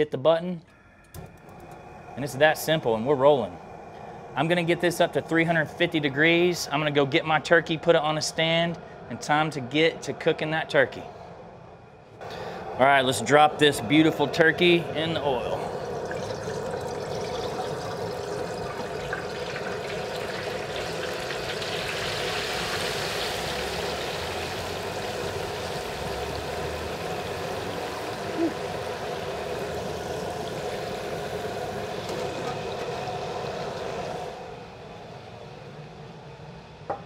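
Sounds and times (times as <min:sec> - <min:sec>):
hot oil bubbling: 0:12.3 - 0:35.6.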